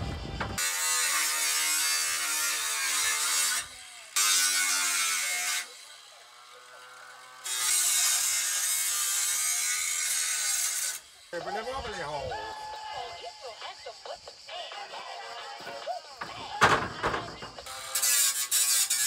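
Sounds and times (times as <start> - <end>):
power tool cutting steel sheet: 0.5 - 11.4, 16.3 - 19.0.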